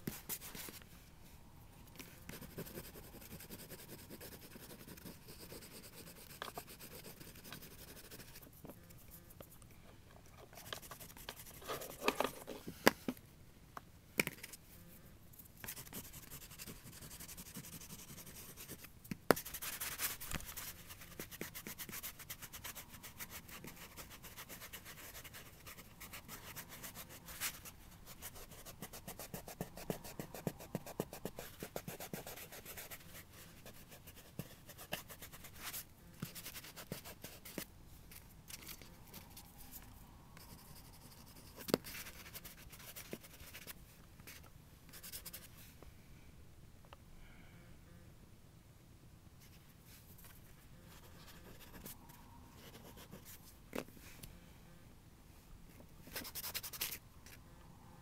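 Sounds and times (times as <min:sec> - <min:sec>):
pastel scratching on paper: 0:02.3 - 0:09.2, 0:10.6 - 0:12.5, 0:15.6 - 0:37.7, 0:40.4 - 0:45.5, 0:56.1 - 0:57.0.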